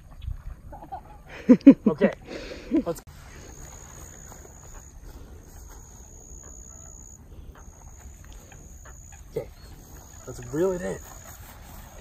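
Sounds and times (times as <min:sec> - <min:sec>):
high insect trill: 0:03.1 - 0:12.0.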